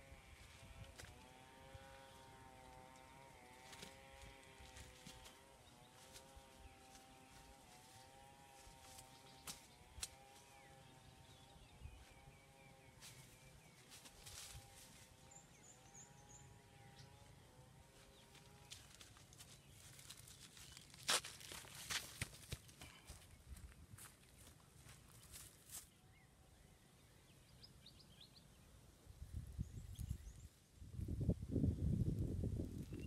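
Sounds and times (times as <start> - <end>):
distant wavering hum: 0.0 - 21.5
bare footsteps on dry ground: 0.4 - 15.6, 18.0 - 26.0.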